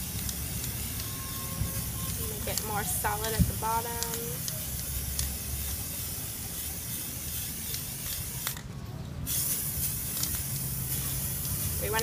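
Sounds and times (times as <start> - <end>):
spray paint can hissing: 0.0 - 12.0.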